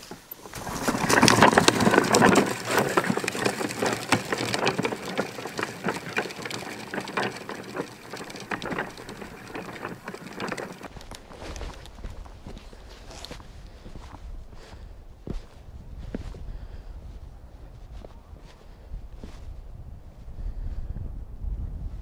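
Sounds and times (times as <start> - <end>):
cooler wheels rattling over dirt: 0.0 - 15.4
footsteps on dirt trail: 0.0 - 19.6.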